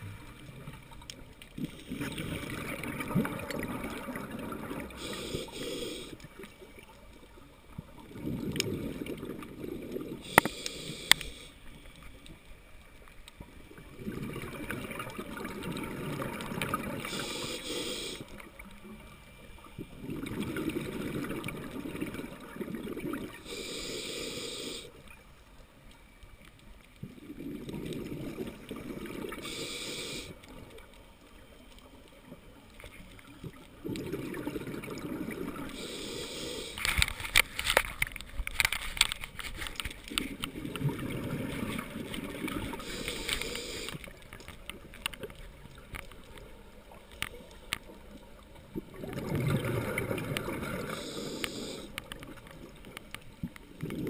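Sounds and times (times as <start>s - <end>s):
regulator inhale hiss: 4.9s - 6.3s, 10.2s - 12.1s, 17.0s - 18.6s, 23.4s - 25.1s, 29.3s - 30.5s, 35.6s - 37.1s, 42.7s - 44.2s, 50.7s - 52.1s.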